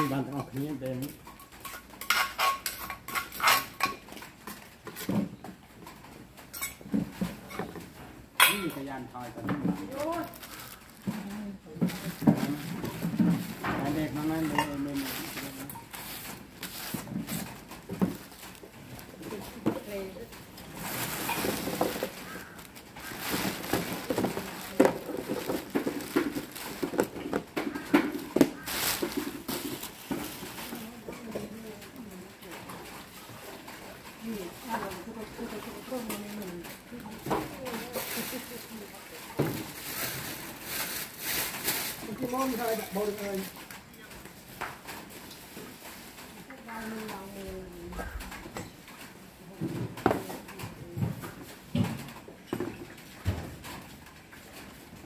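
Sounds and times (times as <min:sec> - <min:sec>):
metal spoon scraping clay mortar: 0:01.6 - 0:04.0
plastic bag crinkling: 0:07.4 - 0:48.4.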